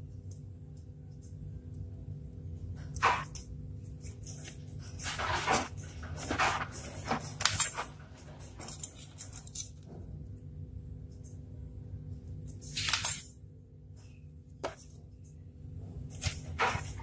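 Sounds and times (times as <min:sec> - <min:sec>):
low steady hum: 0:00.0 - 0:17.0
craft parts scraping and rustling: 0:02.8 - 0:10.2, 0:16.0 - 0:17.0.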